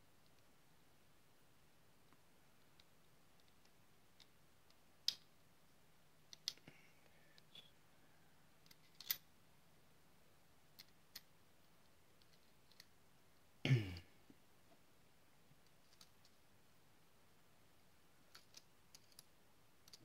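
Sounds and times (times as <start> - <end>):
small metal parts clicking: 8.6 - 9.2, 18.3 - 20.0.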